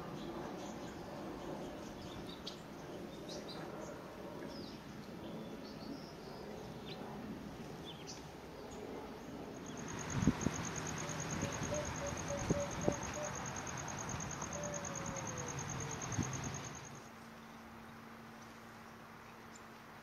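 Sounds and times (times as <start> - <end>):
finches chirping: 9.6 - 17.0.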